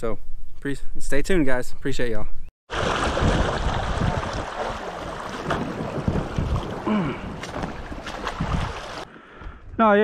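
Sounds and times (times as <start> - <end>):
wind buffeting microphone: 2.8 - 9.8.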